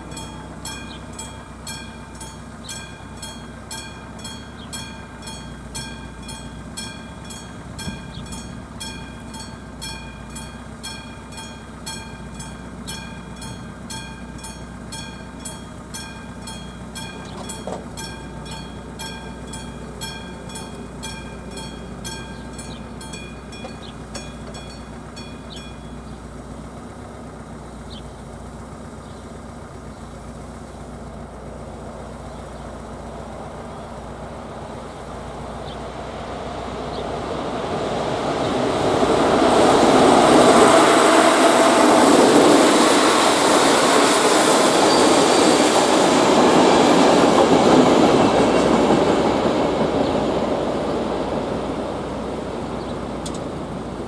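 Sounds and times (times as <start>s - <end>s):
level crossing bell ringing: 0.0s - 26.2s
approaching electric train: 0.0s - 54.0s.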